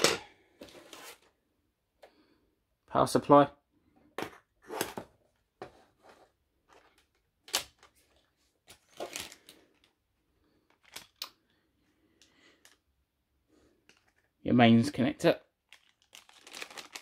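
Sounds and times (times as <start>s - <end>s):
packaging rustling: 6.8s - 10.0s, 10.6s - 11.3s, 15.6s - 17.0s.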